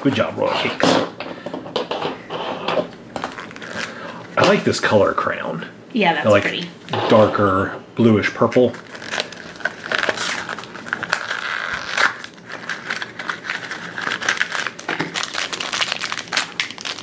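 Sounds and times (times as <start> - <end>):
plastic bag crinkling and tearing: 3.2 - 4.0, 8.6 - 17.0.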